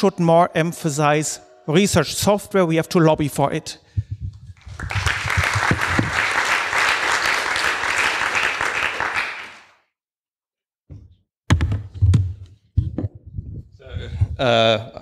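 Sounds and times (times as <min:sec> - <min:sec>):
audience applauding: 0:04.6 - 0:09.8.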